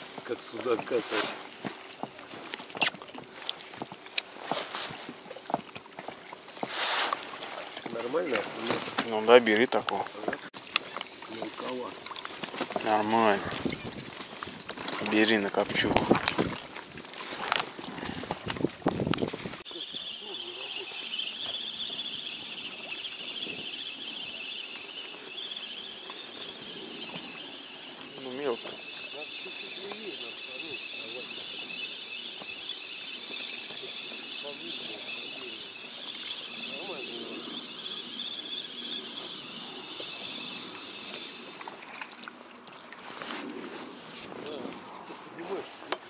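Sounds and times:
water and wind noise: 0.0s - 46.0s
spinning reel gears whirring: 5.8s - 42.1s.

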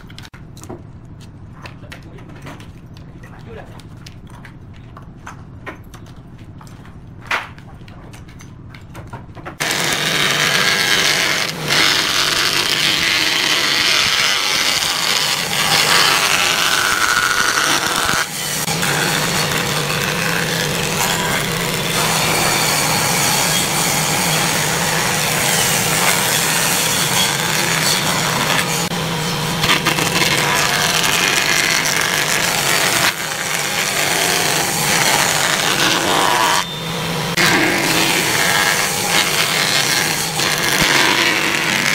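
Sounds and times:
jointer cutterhead cutting wood: 9.6s - 41.9s
jointer motor humming: 9.6s - 41.9s.

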